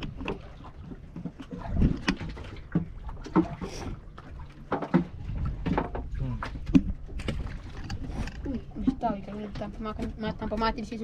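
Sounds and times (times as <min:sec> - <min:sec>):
wind rumbling on microphone: 0:00.0 - 0:04.1
water slapping boat hull: 0:00.0 - 0:11.0.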